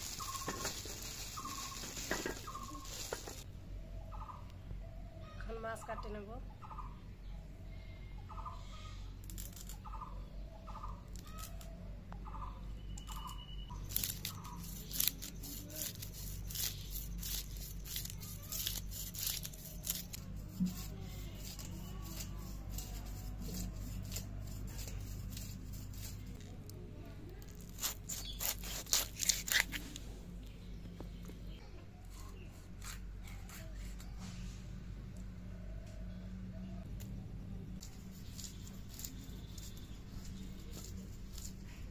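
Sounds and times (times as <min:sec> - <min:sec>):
bird calling: 0:00.0 - 0:03.4
knife scraping fish scales: 0:13.8 - 0:26.6, 0:27.5 - 0:29.8, 0:37.8 - 0:41.9.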